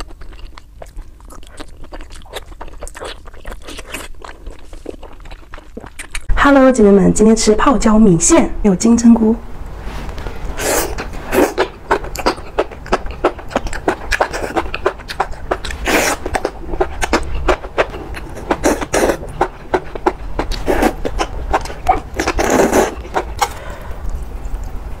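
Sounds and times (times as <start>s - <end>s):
wet mouth clicks: 0.2s - 6.3s, 10.6s - 24.6s
slurping noodles: 10.4s - 23.8s.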